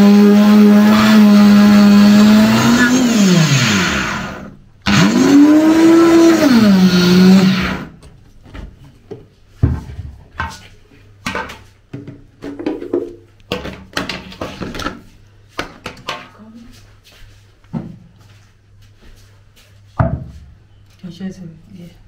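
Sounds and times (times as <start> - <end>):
blender grinding beans: 0.0 - 8.0.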